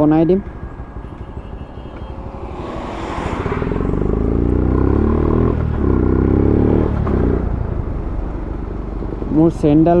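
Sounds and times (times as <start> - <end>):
motorcycle engine accelerating: 0.7 - 7.8.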